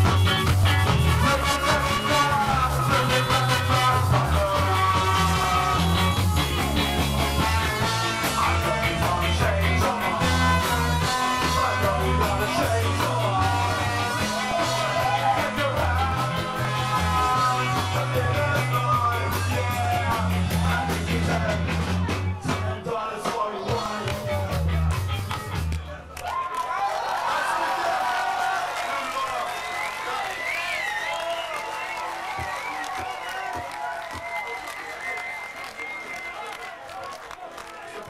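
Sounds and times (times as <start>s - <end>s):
ska band playing live: 0.0s - 25.9s
steady drums: 0.0s - 26.0s
walking bass line: 0.0s - 26.0s
person singing: 0.8s - 6.6s, 7.4s - 24.8s.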